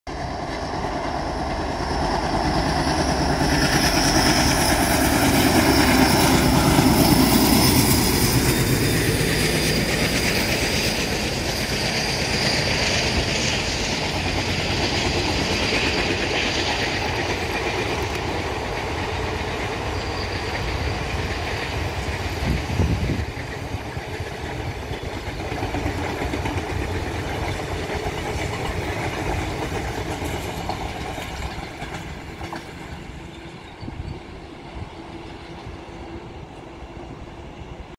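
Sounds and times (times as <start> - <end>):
train rumbling and clattering past: 0.1 - 37.9.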